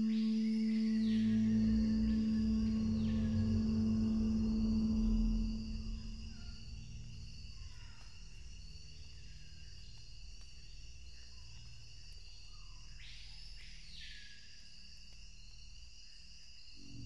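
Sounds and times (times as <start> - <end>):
low drone: 0.0 - 9.5, 16.8 - 17.0.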